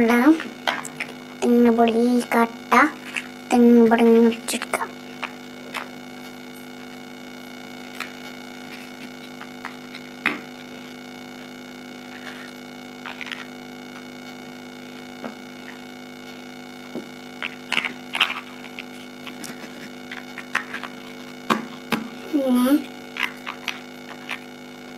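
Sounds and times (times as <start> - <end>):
steady electrical hum: 0.0 - 24.9.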